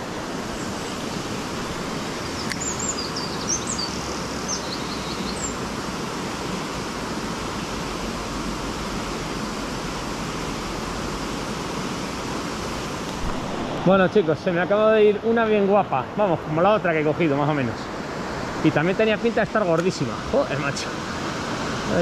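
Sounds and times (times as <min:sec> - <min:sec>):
river water rushing: 0:00.0 - 0:22.0
bird chirping: 0:02.2 - 0:05.6.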